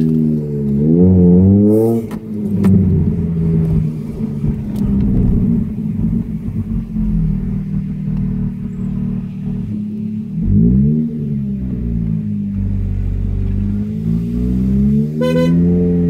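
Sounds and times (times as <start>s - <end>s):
car engine droning: 0.0s - 16.0s
exhaust pops: 1.7s - 10.6s.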